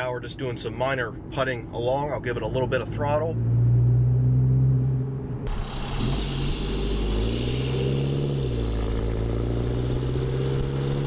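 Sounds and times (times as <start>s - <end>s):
road noise: 0.0s - 11.0s
diesel truck exhaust: 2.9s - 11.0s.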